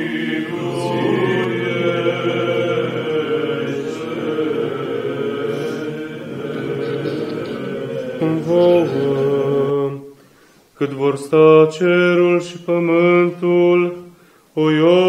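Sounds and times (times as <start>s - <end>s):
low sustained note: 0.0s - 9.6s
church choir chanting: 0.0s - 10.1s.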